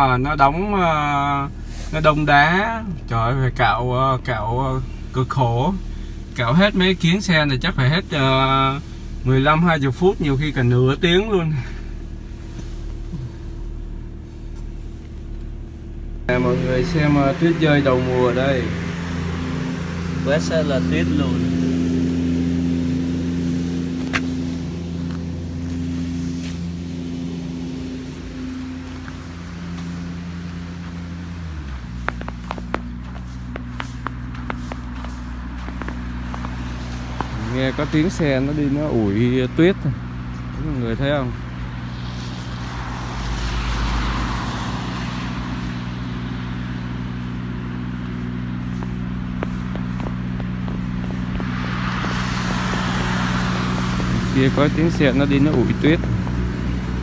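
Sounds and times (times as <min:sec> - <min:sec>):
vehicle engine humming: 0:00.0 - 0:57.0
rushing noise: 0:48.5 - 0:57.0.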